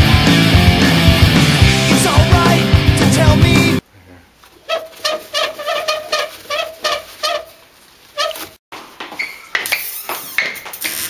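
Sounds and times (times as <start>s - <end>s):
toilet paper roll squeaking: 4.6s - 8.6s.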